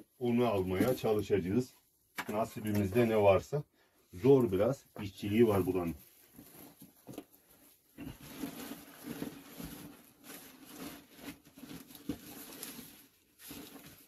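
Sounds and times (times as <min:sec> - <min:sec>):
faint rustling: 0:04.2 - 0:14.0.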